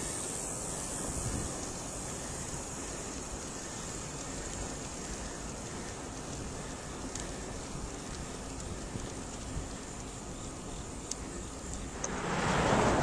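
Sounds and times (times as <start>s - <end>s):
tyre noise on rough asphalt: 0.0s - 13.0s
wind over microphone: 1.0s - 1.8s, 11.9s - 13.0s.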